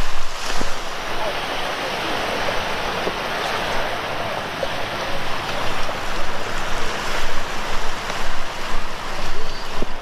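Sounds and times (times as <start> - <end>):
waves breaking on beach: 0.0 - 10.0.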